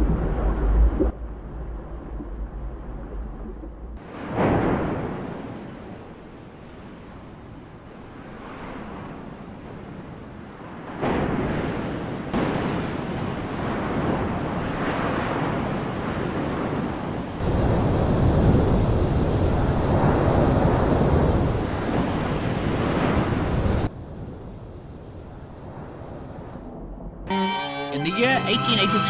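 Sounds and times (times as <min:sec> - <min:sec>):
volcanic eruption roar: 0:04.0 - 0:27.0.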